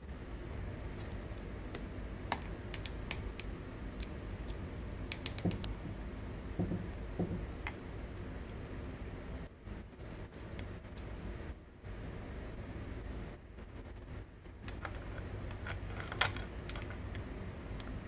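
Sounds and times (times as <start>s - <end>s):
dull knocks: 6.6s - 7.5s
light metal clicks and clinks: 14.6s - 17.3s.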